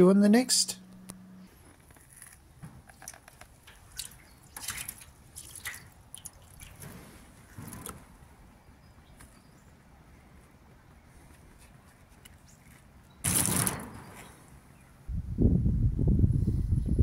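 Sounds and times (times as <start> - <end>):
small drips and spatters: 2.0 - 8.0
water splashing on metal gutter: 2.9 - 8.2, 13.2 - 14.0.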